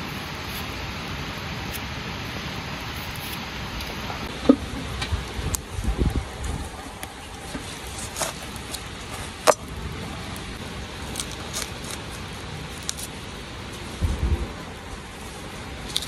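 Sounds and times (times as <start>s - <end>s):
steady hiss: 0.0s - 16.0s
brief low rumble: 14.0s - 14.6s.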